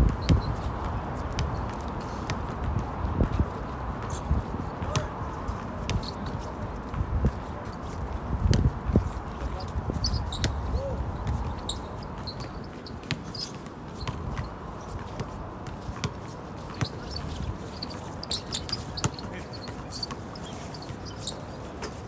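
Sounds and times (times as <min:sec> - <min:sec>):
basketballs bouncing: 0:09.5 - 0:21.0.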